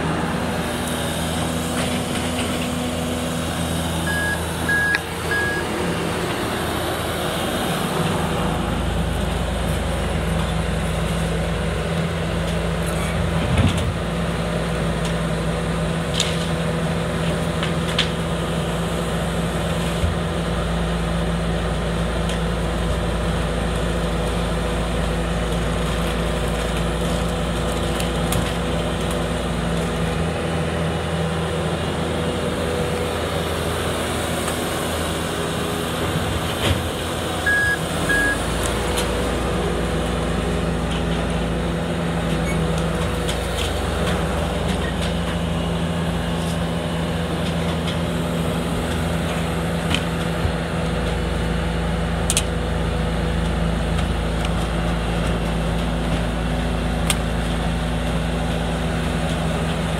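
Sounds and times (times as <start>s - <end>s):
diesel loader engine rumbling: 0.0s - 59.9s
truck engine running: 0.0s - 59.9s
short high beeps: 4.1s - 5.7s, 37.5s - 38.4s.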